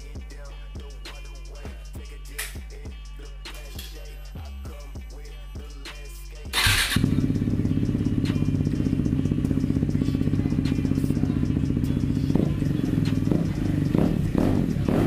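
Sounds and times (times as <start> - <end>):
motorcycle engine idling: 6.5 - 15.0.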